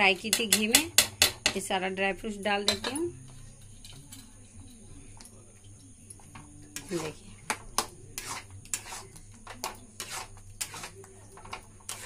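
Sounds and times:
spatula scraping a steel pan: 0:06.8 - 0:07.2, 0:08.1 - 0:12.0.

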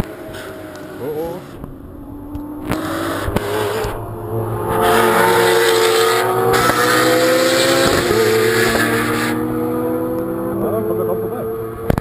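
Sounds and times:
race car engines passing: 0:00.0 - 0:12.0.

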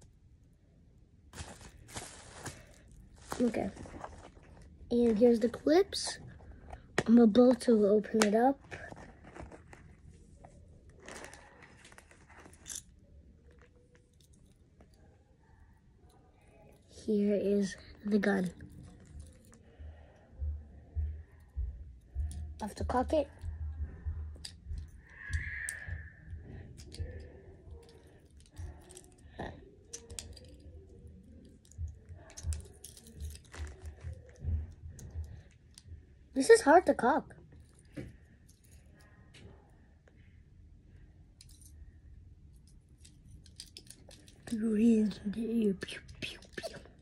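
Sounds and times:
toy package rustling and clicking: 0:01.4 - 0:07.1, 0:08.2 - 0:14.6, 0:26.8 - 0:35.9, 0:42.6 - 0:44.6.

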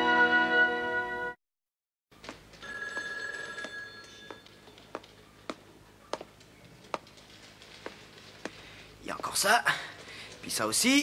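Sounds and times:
footstep knocks: 0:02.2 - 0:08.7
steady high ring: 0:02.6 - 0:04.7.

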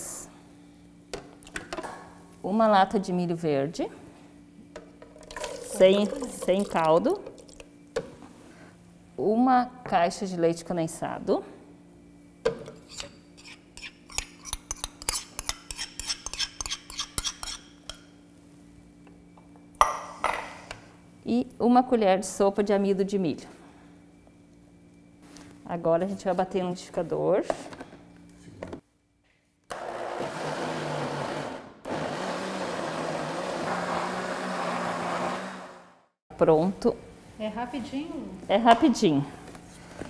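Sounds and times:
metal spoon scraping a bowl: 0:12.8 - 0:18.0
blender motor running: 0:29.7 - 0:36.1.

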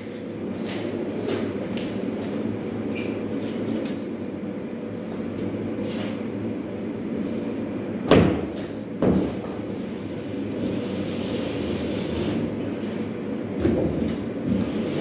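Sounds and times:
steady machine hum: 0:00.0 - 0:15.0
pole sander scraping drywall: 0:10.5 - 0:13.0, 0:14.4 - 0:15.0.

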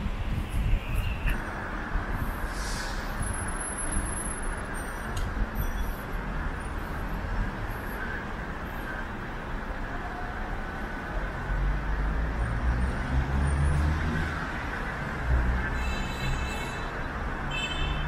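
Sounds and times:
traffic rumble: 0:00.0 - 0:18.0
short hiss: 0:02.5 - 0:03.2.

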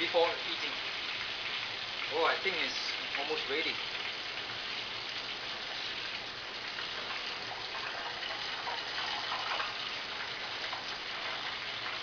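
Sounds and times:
light crackles: 0:00.0 - 0:12.0
oil sizzling: 0:00.0 - 0:12.0.

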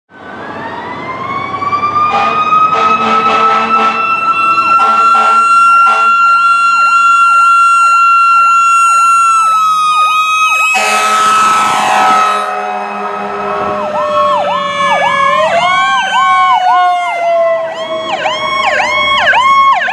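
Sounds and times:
electronic yelp siren: 0:00.1 - 0:19.9
mechanical siren wailing: 0:00.1 - 0:19.9
truck engine and road noise: 0:00.1 - 0:19.9
air horn blasts: 0:02.1 - 0:04.1, 0:04.7 - 0:07.0, 0:10.7 - 0:14.3.

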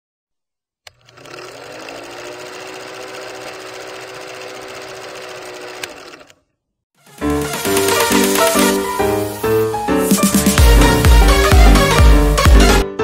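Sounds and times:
film projector clattering: 0:00.9 - 0:06.4.

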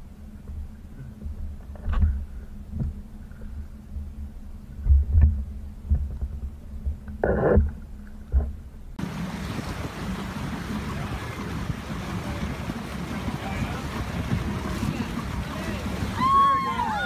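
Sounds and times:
churning water: 0:00.0 - 0:17.0
wind: 0:00.0 - 0:17.0
water lapping: 0:09.0 - 0:17.0.

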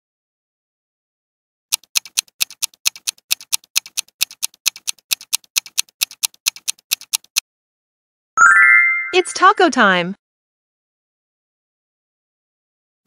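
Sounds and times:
clock ticking: 0:01.7 - 0:07.4.

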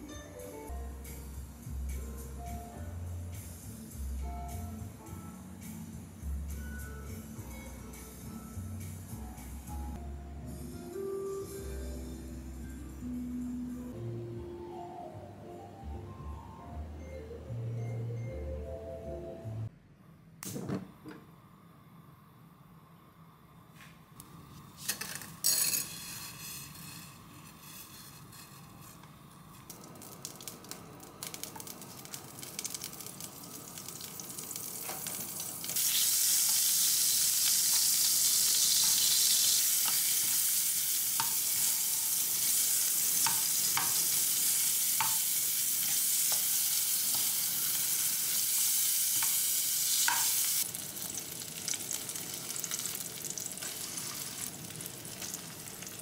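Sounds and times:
butter sizzling in frying pan: 0:29.6 - 0:56.0
spatula knocking pan: 0:43.2 - 0:44.0, 0:45.0 - 0:46.5.

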